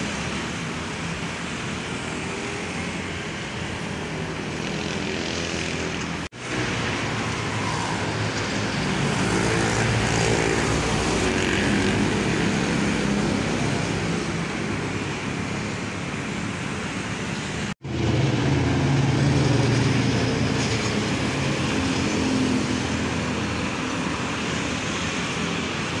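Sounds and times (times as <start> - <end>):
road traffic: 0.0 - 26.0
truck engine passing close: 17.8 - 23.7.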